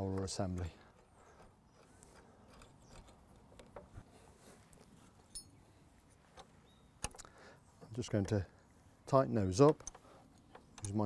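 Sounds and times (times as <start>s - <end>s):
small metal clicks and taps: 0.0s - 4.0s, 6.3s - 8.4s, 9.6s - 11.0s.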